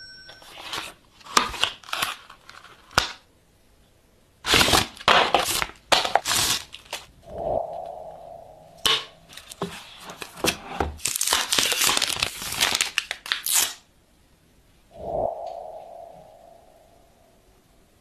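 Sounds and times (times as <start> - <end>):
plastic film crinkling and tearing: 1.2 - 3.2, 4.4 - 7.1, 11.0 - 13.8.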